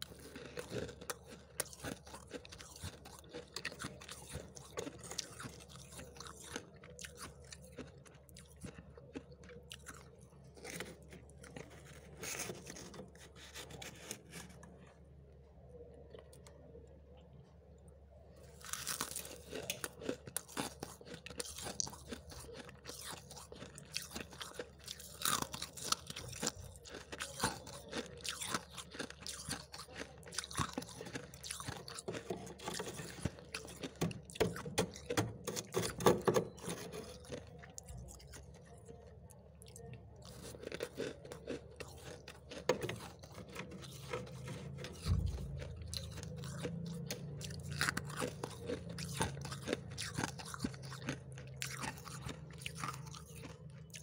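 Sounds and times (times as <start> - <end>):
spoon scooping crunchy frost: 0.0 - 16.6, 18.4 - 54.0
low hum: 43.8 - 47.9.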